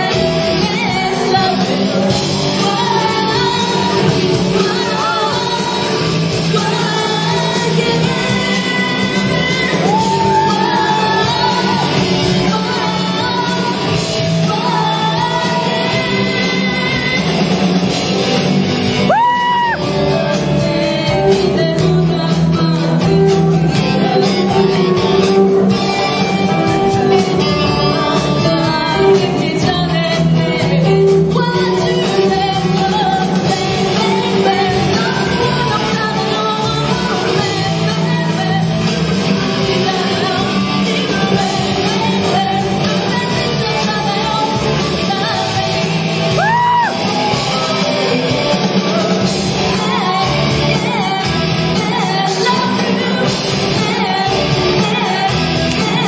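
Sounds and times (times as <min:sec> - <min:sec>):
sung and shouted vocals: 0:00.0 - 0:17.6, 0:39.3 - 0:56.0
drums: 0:00.0 - 0:56.0
electric guitar: 0:00.0 - 0:56.0.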